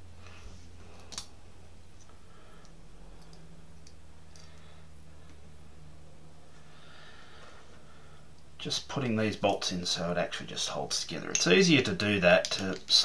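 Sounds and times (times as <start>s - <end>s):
steady low hum: 0.0s - 13.0s
metal hardware clicking: 11.3s - 11.6s.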